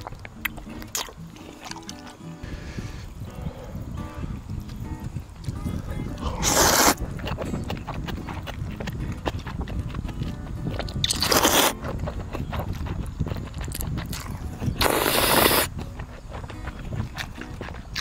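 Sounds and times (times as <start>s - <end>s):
chewing sounds: 0.0s - 18.0s
slurping noodles: 6.2s - 7.4s, 11.0s - 11.8s, 12.7s - 15.7s.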